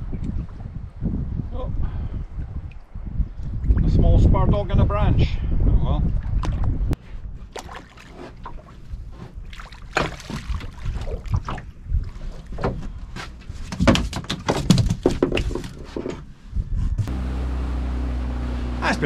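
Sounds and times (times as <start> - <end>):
knocks and rattles of fish handling: 7.6 - 16.3
outboard motor humming: 17.0 - 19.0.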